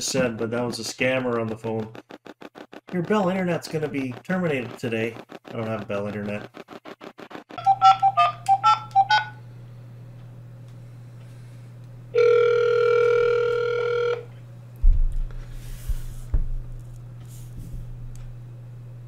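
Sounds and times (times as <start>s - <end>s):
low line hum: 0.0s - 12.4s
touch-tone dialing beeps: 7.6s - 9.3s
ringback tone: 7.6s - 9.4s.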